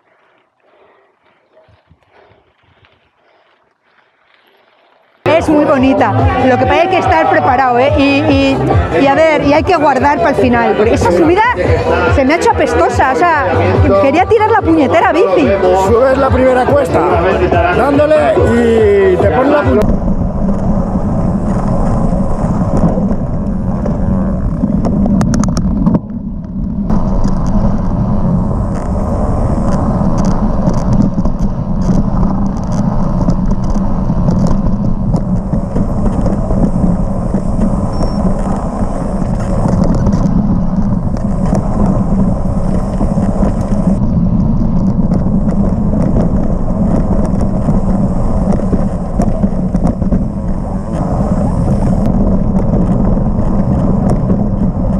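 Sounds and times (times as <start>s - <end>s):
bike rattling: 0.0s - 6.5s, 19.8s - 54.9s
trail rumble: 0.0s - 54.9s
wind buffeting: 0.0s - 54.9s.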